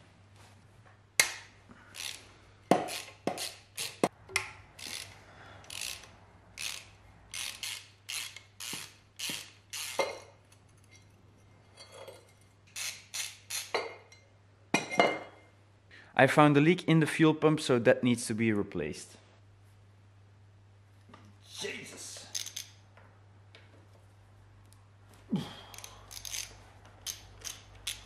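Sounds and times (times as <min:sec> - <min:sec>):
ratchet clicking: 0:02.0 - 0:04.1, 0:04.8 - 0:10.1, 0:12.7 - 0:13.8, 0:22.3 - 0:22.8, 0:25.7 - 0:28.0.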